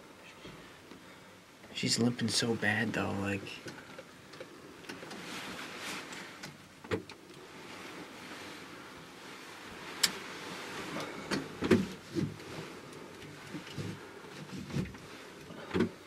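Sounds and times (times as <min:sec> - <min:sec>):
soft rustling: 0:04.5 - 0:06.7, 0:07.4 - 0:15.7.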